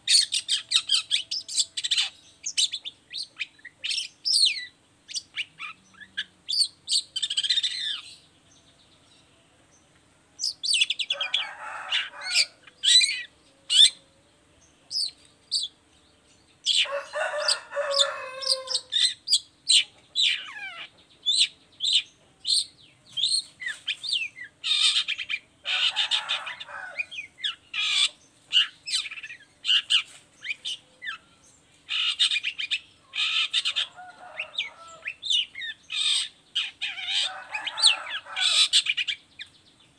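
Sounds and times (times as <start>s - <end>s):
bird harsh rasping chatter: 23.2s - 30.8s, 31.9s - 39.2s.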